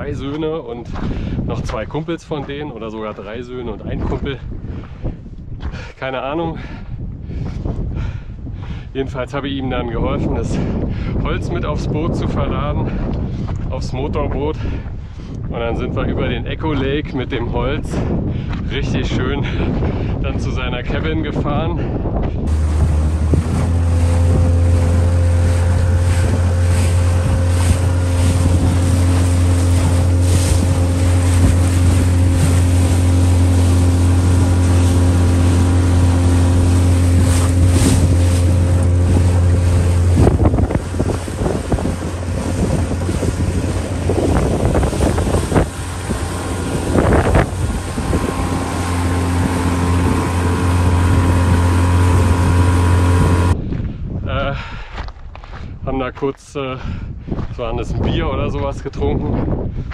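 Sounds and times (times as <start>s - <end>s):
wind buffeting microphone: 0.0s - 59.9s
motorboat engine drone: 22.4s - 53.6s.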